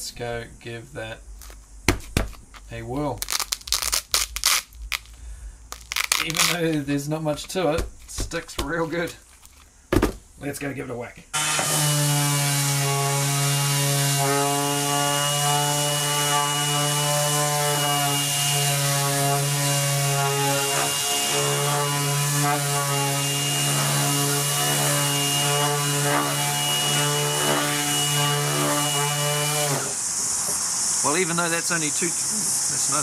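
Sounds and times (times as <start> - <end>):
orbit sander humming: 11.4 - 31.1
sandpaper hissing on wood: 11.5 - 33.0.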